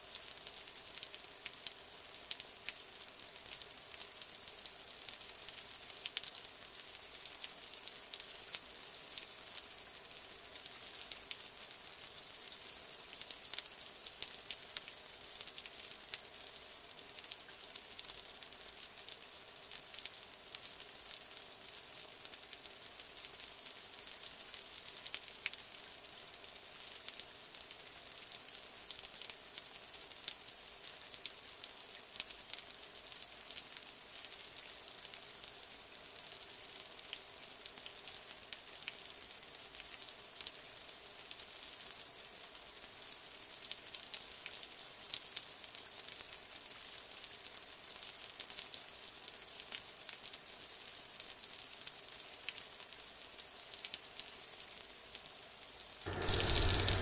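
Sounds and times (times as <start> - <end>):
crackling hiss of water: 0.0 - 57.0
small ticks: 56.1 - 57.0.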